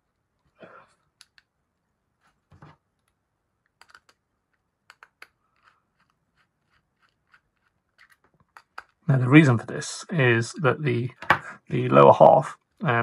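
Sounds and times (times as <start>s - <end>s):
faint clicks of plastic parts: 0.1s - 1.6s, 2.2s - 9.1s.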